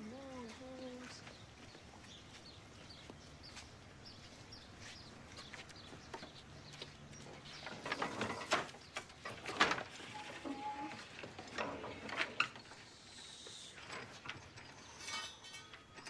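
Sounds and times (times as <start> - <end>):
wood creak: 7.6 - 12.9.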